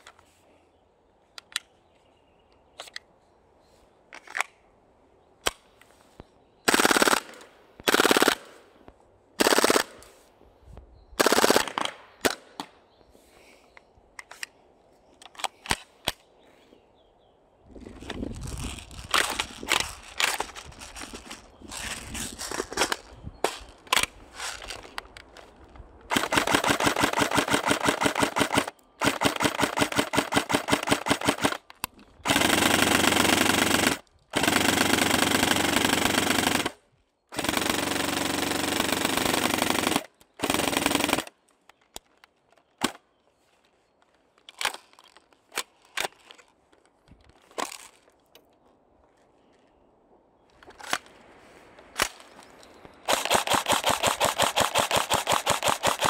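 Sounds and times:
airsoft rifles firing: 6.7 - 8.6, 9.4 - 10.0, 11.2 - 12.7, 26.1 - 31.6, 53.0 - 56.0.

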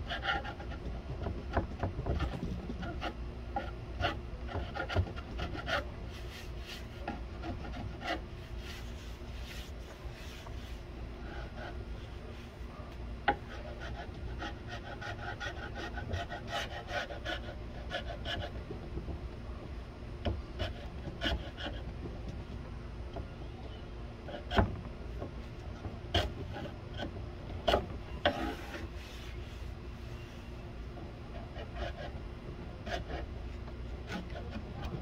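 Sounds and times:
hand scraper scraping wood: 0.0 - 12.4, 13.3 - 18.6, 26.1 - 29.7, 32.8 - 35.0.

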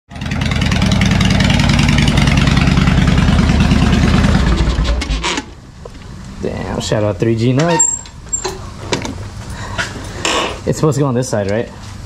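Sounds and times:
motorcycle engine idling: 0.1 - 4.7.

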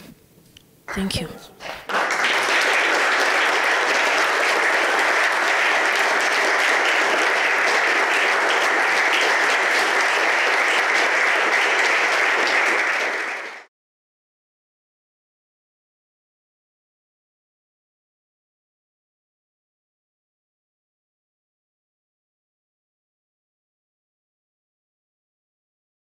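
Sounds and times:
audience applauding: 0.9 - 13.7.

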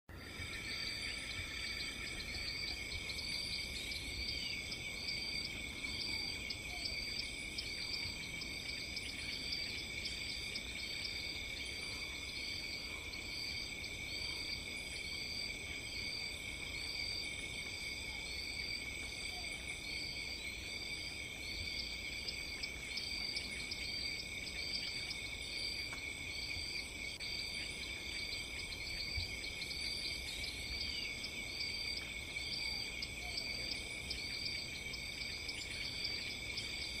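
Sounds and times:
insects trilling: 0.1 - 37.0.

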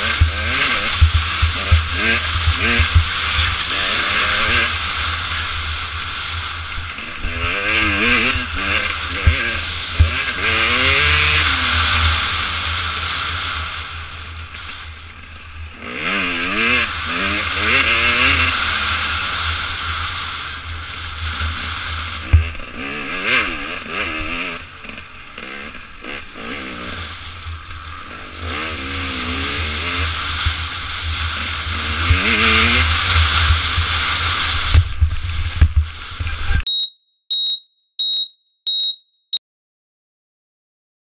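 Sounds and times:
dirt bike engine revving: 0.0 - 36.6
short high beeps: 36.7 - 39.4.

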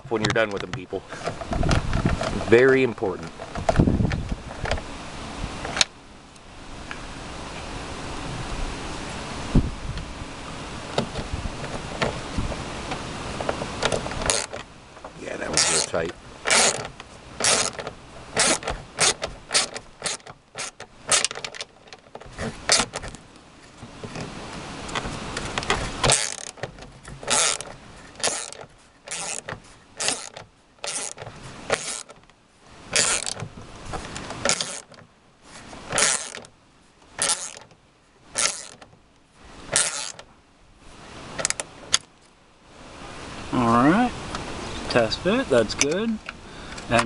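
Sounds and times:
socket ratchet clicking: 13.8 - 14.7, 15.6 - 23.1, 25.6 - 32.2, 32.9 - 33.4, 34.4 - 35.0, 35.9 - 36.5, 37.2 - 37.8, 38.4 - 38.9, 39.7 - 40.3.

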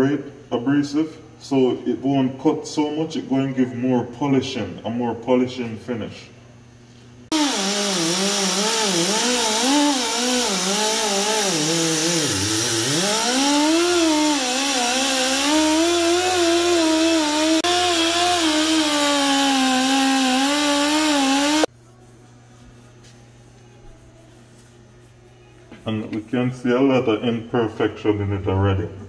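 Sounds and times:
air rotary tool whining: 7.3 - 21.7.

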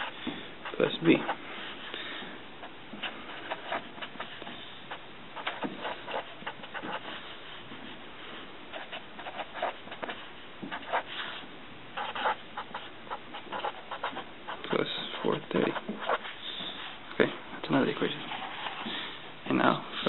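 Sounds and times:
pen scratching on paper: 0.0 - 1.8, 2.6 - 7.6, 8.3 - 11.4, 12.0 - 17.0, 18.0 - 19.0.

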